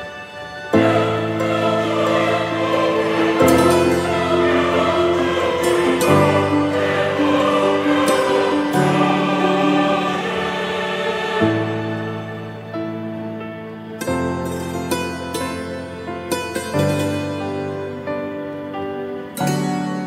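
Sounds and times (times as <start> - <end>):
choir singing held chords: 0.0 - 16.0.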